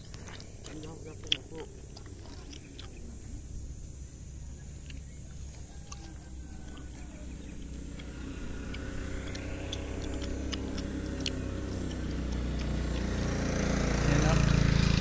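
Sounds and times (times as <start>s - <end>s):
vehicle engine running: 0.0s - 15.0s
sharp clicks: 4.8s - 13.2s.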